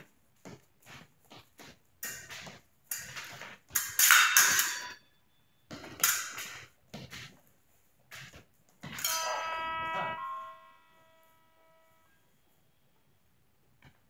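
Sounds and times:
footwork stamps: 0.0 - 5.0, 5.7 - 9.1
fencing blades clashing and scraping: 0.9 - 5.0, 5.7 - 7.4, 8.1 - 12.1.

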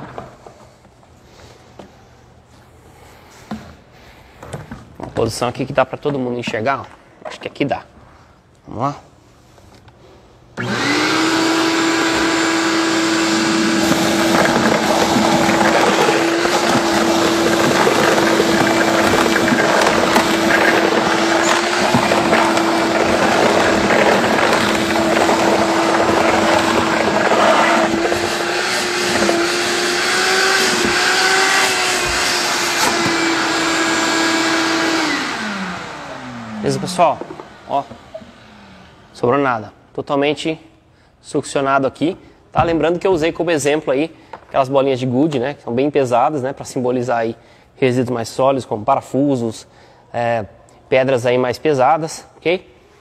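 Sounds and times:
shop vacuum running: 10.5 - 39.8
vacuum motor winding down: 10.6 - 39.2
debris clicking up vacuum hose: 13.3 - 35.2.

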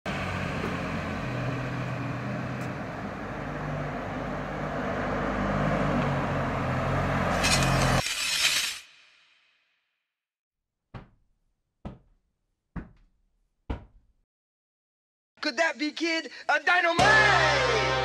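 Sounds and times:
traffic noise: 0.1 - 8.0.

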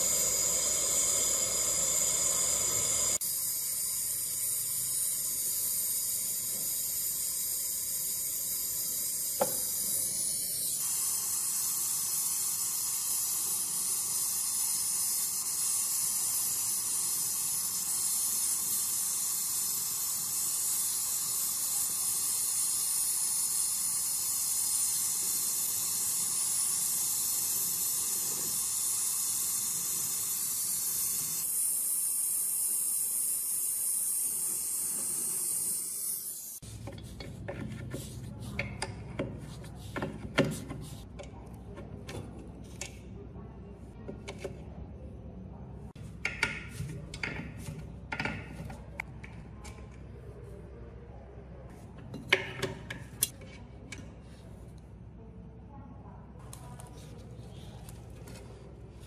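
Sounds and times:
gas torch flame hissing: 0.0 - 41.1
click: 56.5 - 56.9.

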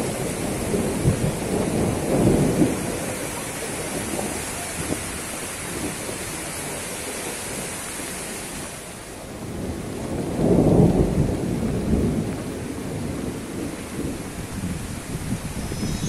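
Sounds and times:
strong wind rushing through fronds: 0.0 - 16.0.

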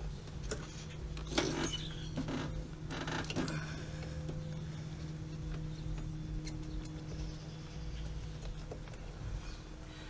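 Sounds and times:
steady low hum: 0.0 - 10.0
rubber hose creaking and rubbing: 0.4 - 3.8.

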